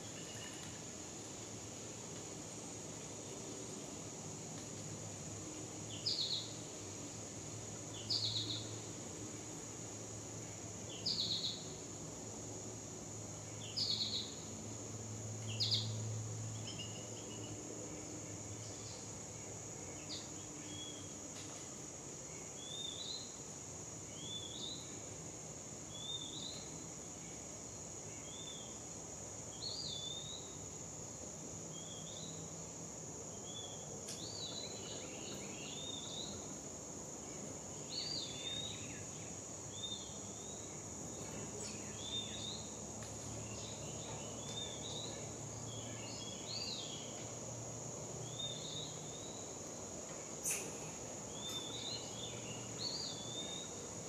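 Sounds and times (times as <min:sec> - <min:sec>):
bird chirping: 0:07.9 - 0:08.8, 0:50.4 - 0:53.8.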